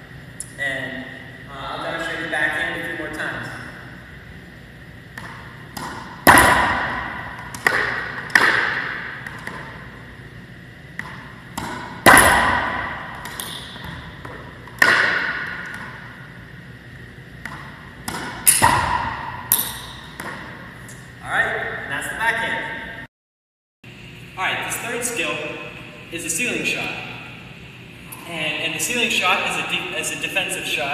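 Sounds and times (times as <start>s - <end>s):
racquetball strikes echoing: 4.8s - 21.9s
ball bouncing: 5.1s - 10.0s, 10.9s - 16.3s, 17.4s - 21.0s.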